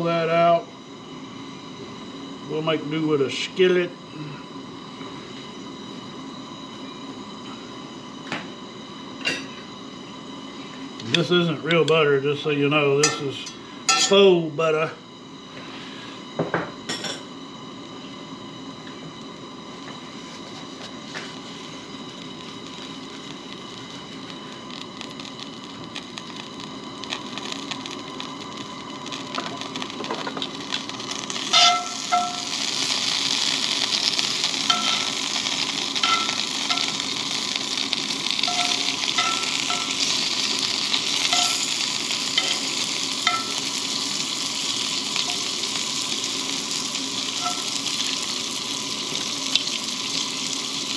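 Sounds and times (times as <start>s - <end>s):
bacon sizzling in a skillet: 13.0s - 14.2s, 20.1s - 50.9s.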